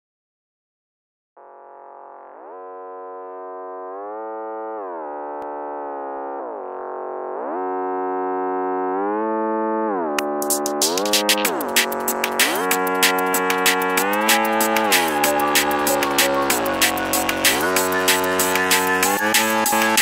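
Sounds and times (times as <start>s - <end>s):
gliding synthesizer lead: 1.4s - 20.0s
sharp percussion hits: 10.7s - 20.0s.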